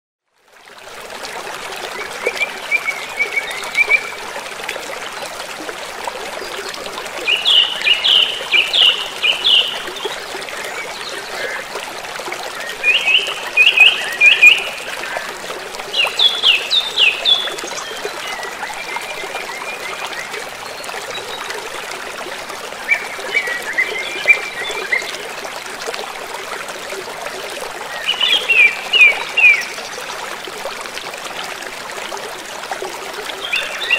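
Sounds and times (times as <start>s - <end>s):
trickle of running water: 0.3s - 33.9s
songbird singing: 7.2s - 11.6s, 12.6s - 20.4s, 27.9s - 29.9s.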